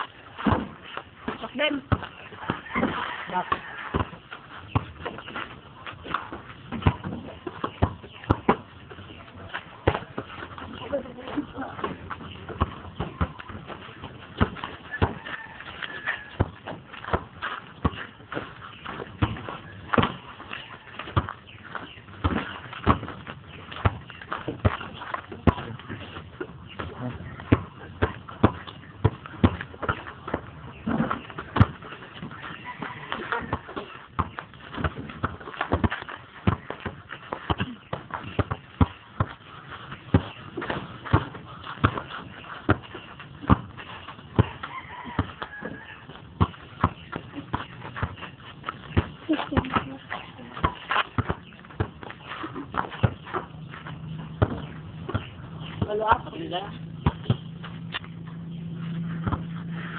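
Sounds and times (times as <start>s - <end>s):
basketball bouncing on hard ground: 0.0s - 59.9s
sharp thumps and knocks: 0.4s - 2.1s.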